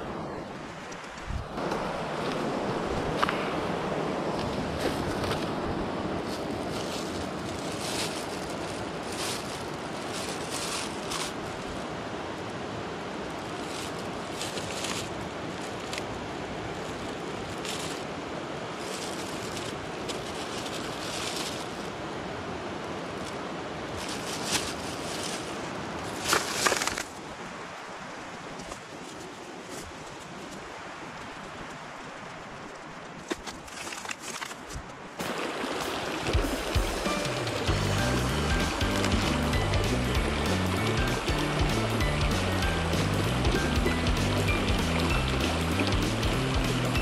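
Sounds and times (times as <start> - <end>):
plastic bags crinkling: 6.3 - 11.8
steady rushing background: 36.0 - 47.0.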